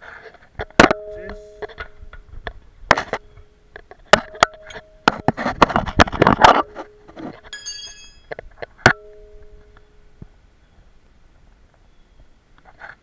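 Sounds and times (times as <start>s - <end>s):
metal knock ringing: 0.7s - 5.4s, 6.5s - 10.0s.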